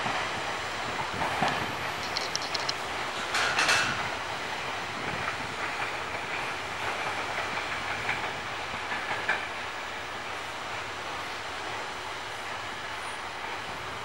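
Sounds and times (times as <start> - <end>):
train wheel and rail noise: 0.0 - 14.0
light clicks: 1.4 - 2.8
clattering over points: 2.0 - 2.8.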